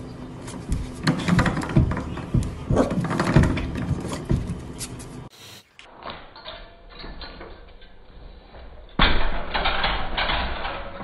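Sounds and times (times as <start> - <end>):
paws tapping and scrabbling: 0.4 - 5.0.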